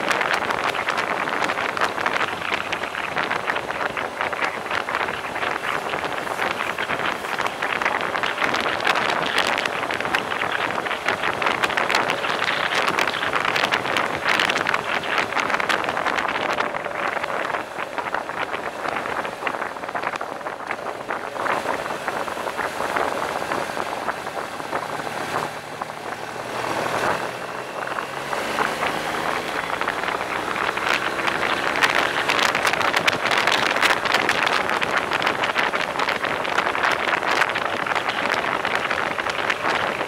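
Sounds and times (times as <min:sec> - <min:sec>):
wind buffeting on microphone: 0:00.0 - 0:40.0
motorcycle engine rising in pitch: 0:21.0 - 0:33.7.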